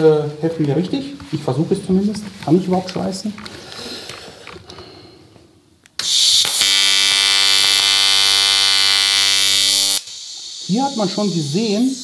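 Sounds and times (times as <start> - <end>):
welding arc buzzing: 6.0 - 12.0.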